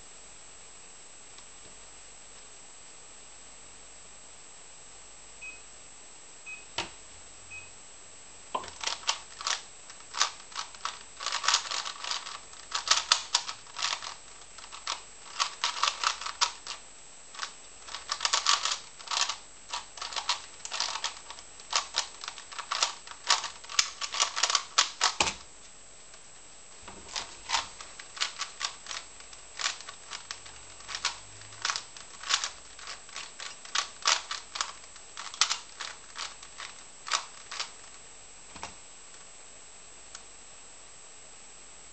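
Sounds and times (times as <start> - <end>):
plastic puzzle cube clicking: 8.6 - 16.8, 17.4 - 25.4, 27.1 - 37.9.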